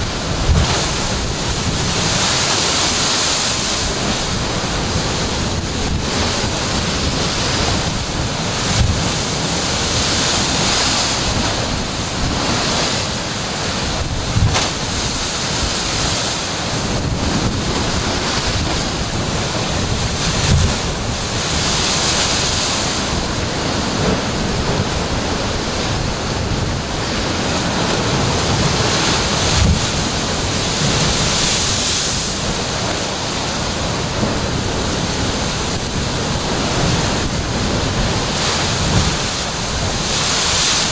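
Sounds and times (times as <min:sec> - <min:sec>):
heavy surf breaking on rocks: 0:00.0 - 0:40.9
wind buffeting microphone: 0:00.0 - 0:40.9.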